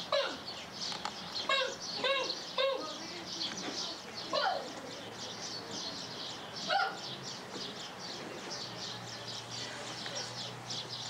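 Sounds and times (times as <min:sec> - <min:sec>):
bird chirping: 0:00.0 - 0:11.0.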